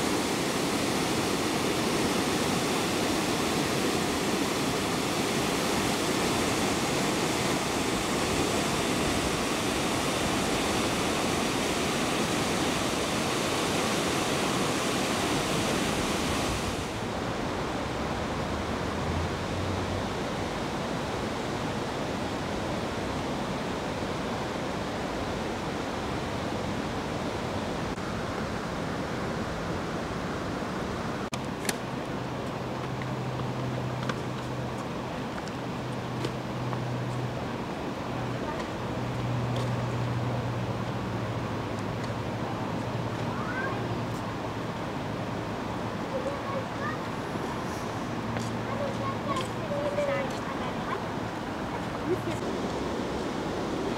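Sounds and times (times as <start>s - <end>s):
river water rushing: 0.0s - 53.9s.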